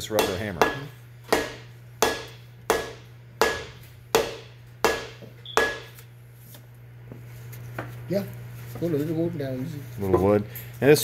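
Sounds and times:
rubber mallet strikes on metal: 0:00.0 - 0:06.0.

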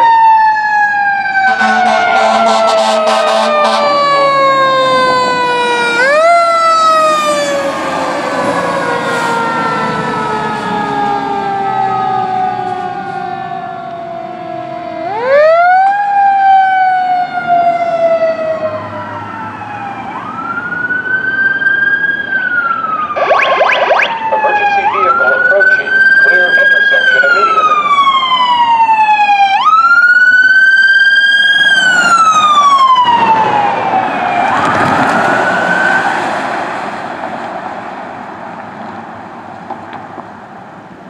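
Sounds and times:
fire engine siren wailing: 0:00.0 - 0:37.4
truck engine rumbling: 0:18.4 - 0:28.6.

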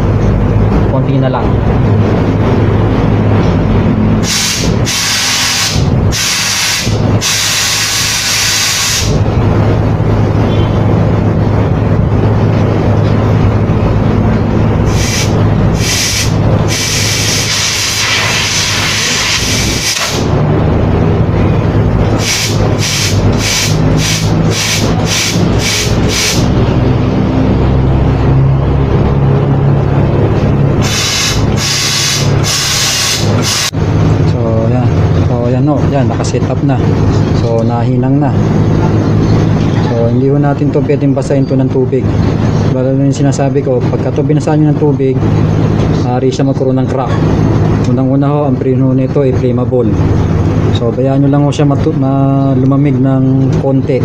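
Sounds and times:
gas hissing through tubing: 0:04.2 - 0:09.1, 0:14.9 - 0:20.3, 0:22.2 - 0:26.5, 0:30.8 - 0:33.7.

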